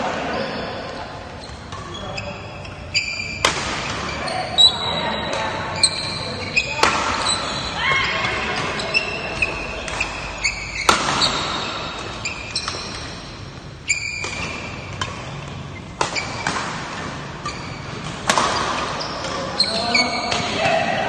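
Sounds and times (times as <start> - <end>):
shoes squeaking on floor: 0.2 - 20.5
rackets striking shuttlecock: 3.2 - 4.2, 6.6 - 20.6.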